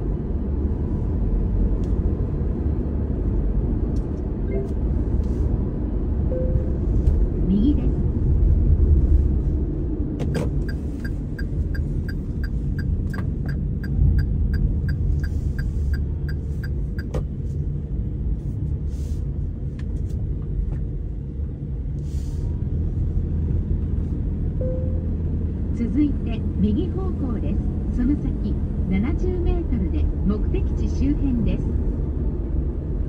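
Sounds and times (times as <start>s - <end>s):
vehicle road and engine rumble: 0.0s - 33.0s
turn signal clicking: 10.2s - 17.3s.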